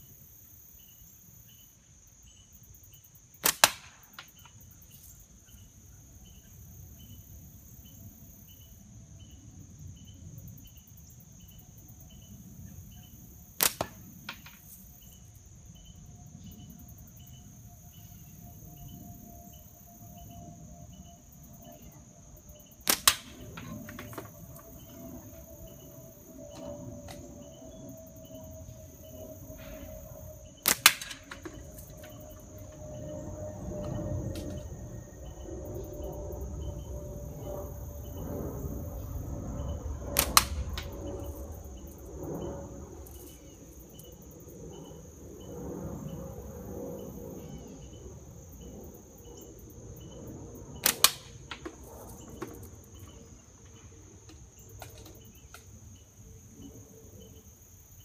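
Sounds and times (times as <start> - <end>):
crickets and insects chirping: 0.0 - 58.0
slingshot bands snapping: 3.4 - 4.5, 13.6 - 14.8, 22.8 - 24.3, 30.6 - 32.0, 40.2 - 40.9, 50.8 - 51.8
sharp crack: 3.4 - 4.6, 13.6 - 14.8, 22.8 - 25.0, 29.5 - 33.0, 40.0 - 41.6, 50.8 - 52.7.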